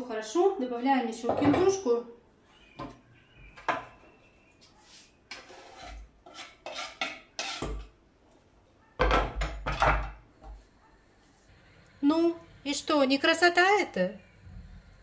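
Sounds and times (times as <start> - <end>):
knife scraping on cutting board: 4.8 - 7.8.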